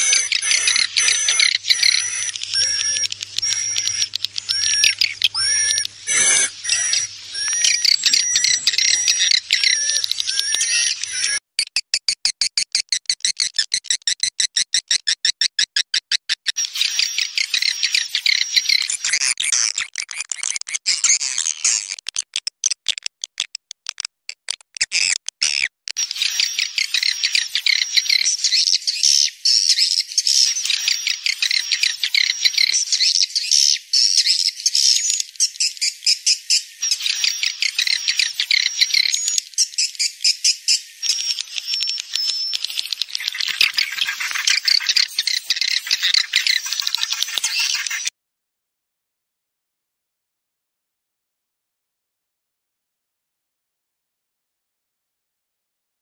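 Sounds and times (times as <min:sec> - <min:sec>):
swiftlets chirping and clicking: 0:00.0 - 0:48.1.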